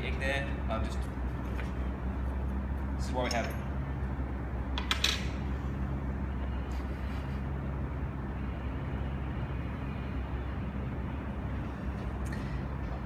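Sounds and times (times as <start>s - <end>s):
low mechanical hum: 0.0s - 13.0s.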